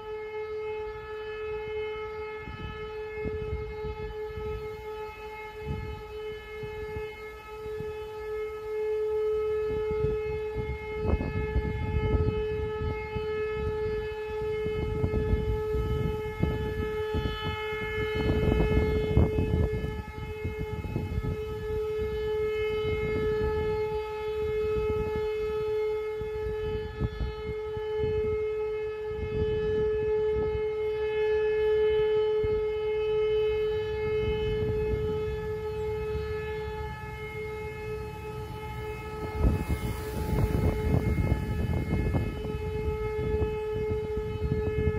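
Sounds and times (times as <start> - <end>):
steady siren tone: 0.0 - 44.9
gusty low rumble: 9.6 - 31.0, 32.3 - 44.9.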